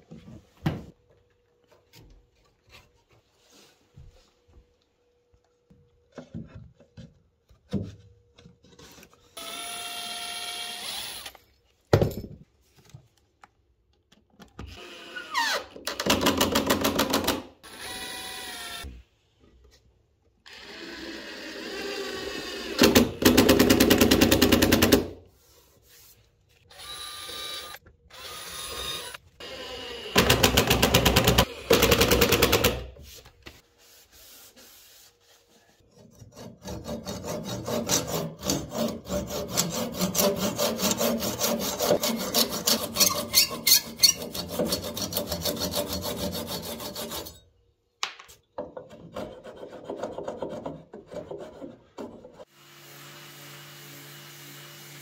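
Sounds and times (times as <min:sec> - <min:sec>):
cordless drill whining: 0:09.4 - 0:11.4, 0:26.7 - 0:30.3.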